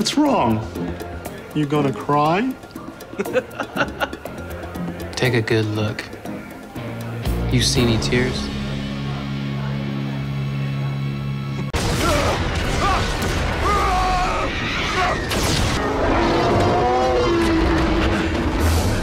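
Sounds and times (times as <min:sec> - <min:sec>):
explosions booming: 0:11.8 - 0:19.0.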